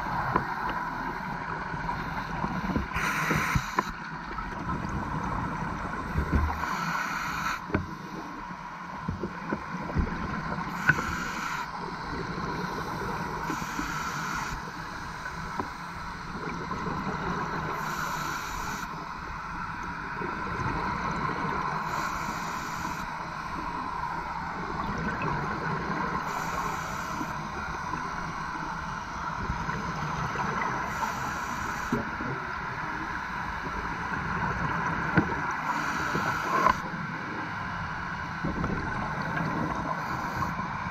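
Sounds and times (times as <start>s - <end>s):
regulator breath hiss: 2.0s - 4.0s, 6.5s - 8.3s, 10.7s - 11.8s, 12.6s - 15.9s, 17.7s - 19.1s, 21.8s - 23.4s, 26.2s - 27.5s, 30.8s - 32.1s, 35.6s - 36.9s, 39.9s - 40.6s
underwater bubbles rumbling: 4.0s - 6.6s, 24.2s - 26.3s, 38.3s - 40.1s.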